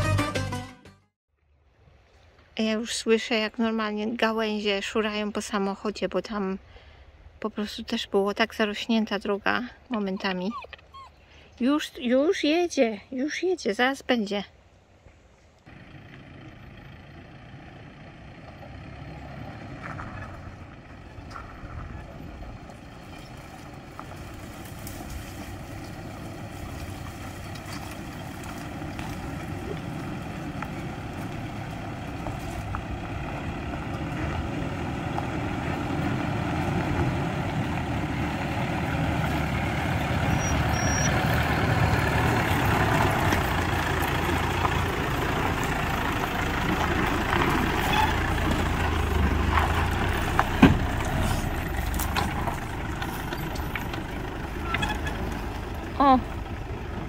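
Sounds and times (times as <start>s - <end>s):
truck engine running: 15.7s - 57.0s.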